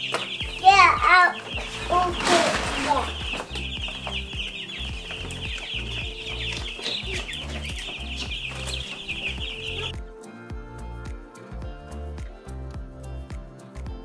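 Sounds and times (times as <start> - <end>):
baby chicks peeping: 0.0 - 10.2
background music with bass beat: 3.0 - 14.0.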